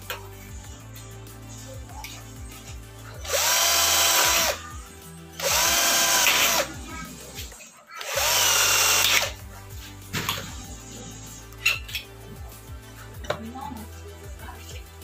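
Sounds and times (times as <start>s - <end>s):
cordless drill boring into metal: 3.3s - 4.6s, 5.4s - 6.7s, 8.0s - 9.4s.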